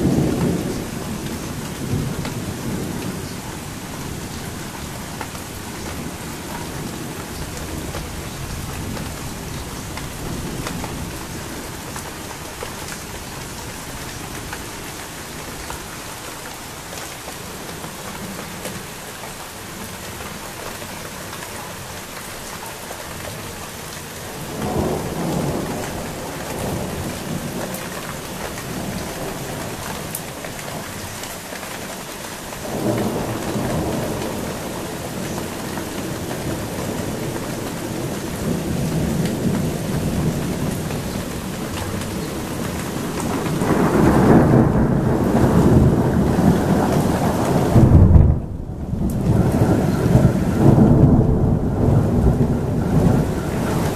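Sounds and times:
thunder rumbling: 0:00.0 - 0:14.5, 0:24.4 - 0:30.4, 0:32.6 - 0:53.9
steady rain: 0:00.0 - 0:53.9
thunder claps: 0:32.6 - 0:53.9.

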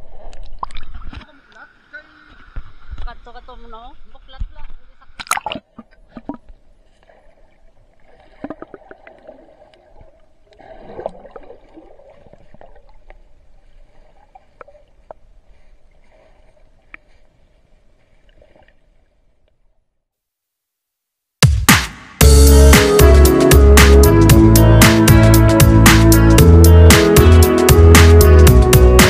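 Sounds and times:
water sloshing and splashing: 0:00.0 - 0:19.6.

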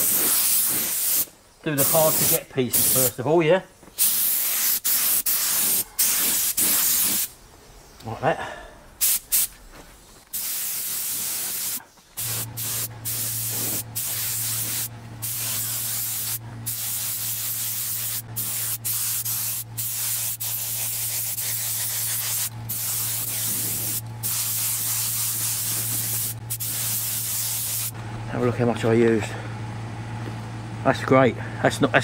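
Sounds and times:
spray gun hissing: 0:00.0 - 0:03.2, 0:04.0 - 0:07.3, 0:09.0 - 0:09.5, 0:10.3 - 0:28.0
steady low hum: 0:04.8 - 0:32.0.

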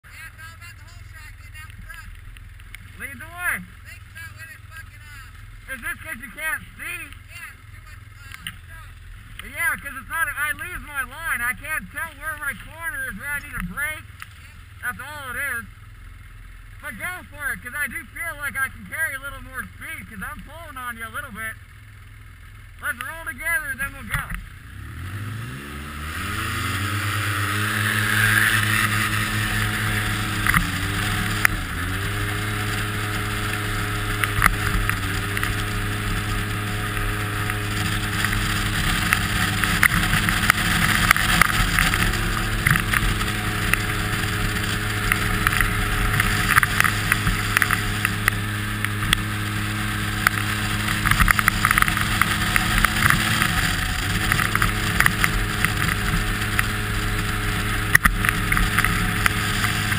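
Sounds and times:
vehicle engine running: 0:00.0 - 0:59.9
scattered ticks: 0:33.4 - 0:49.3, 0:50.2 - 0:59.9.

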